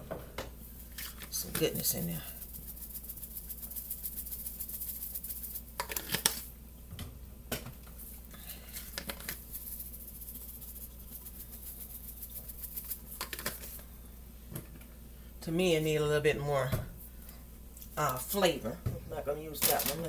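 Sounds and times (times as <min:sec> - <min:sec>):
shaker clicks: 0:00.9 - 0:06.5, 0:07.9 - 0:13.8
spice shaker rattling: 0:00.9 - 0:06.5, 0:08.0 - 0:13.8.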